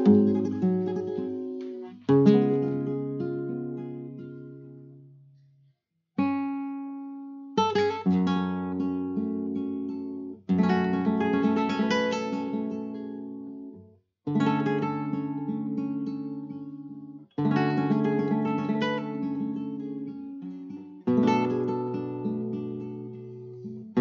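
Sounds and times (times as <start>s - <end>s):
acoustic guitar strummed chords: 0.0s - 5.0s.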